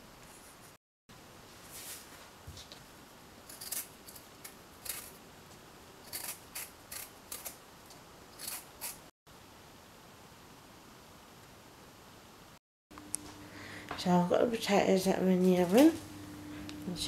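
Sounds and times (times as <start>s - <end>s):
blade scraping potato skin: 3.5s - 5.2s, 6.0s - 7.6s, 8.3s - 9.0s.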